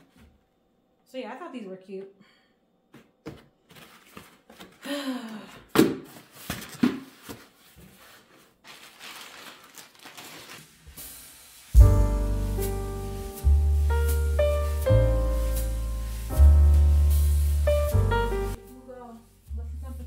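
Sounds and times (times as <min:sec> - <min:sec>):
paper and plastic rustling: 0:03.6 - 0:04.9, 0:06.0 - 0:11.2.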